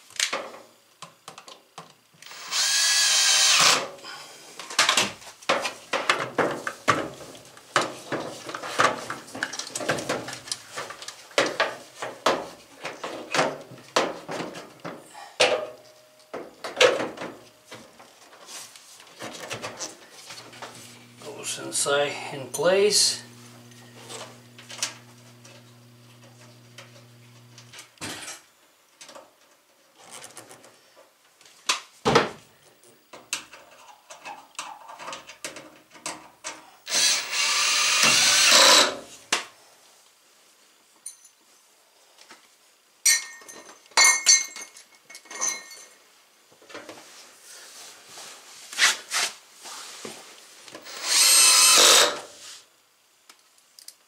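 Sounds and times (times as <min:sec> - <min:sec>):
cordless drill driving screws: 0:02.2 - 0:03.9, 0:36.8 - 0:39.0, 0:50.8 - 0:52.3.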